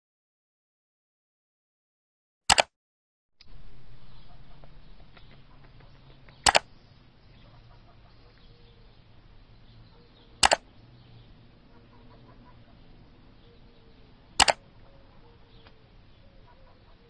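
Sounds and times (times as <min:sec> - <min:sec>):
sharp double clicks: 0:02.5 - 0:02.7, 0:04.6 - 0:06.7, 0:10.4 - 0:10.7, 0:14.4 - 0:14.6
faint low hum: 0:03.4 - 0:17.0.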